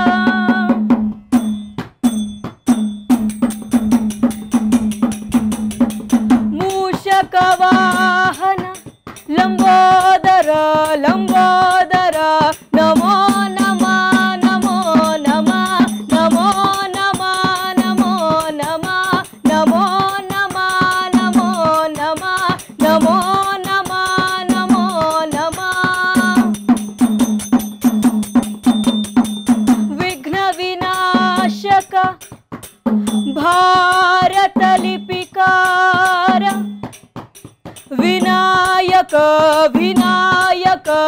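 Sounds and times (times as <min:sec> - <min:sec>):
woman singing devotional song: 0:00.0 - 0:01.0, 0:06.5 - 0:26.8, 0:29.8 - 0:36.9, 0:37.6 - 0:41.0
hand drum strokes: 0:00.0 - 0:40.9.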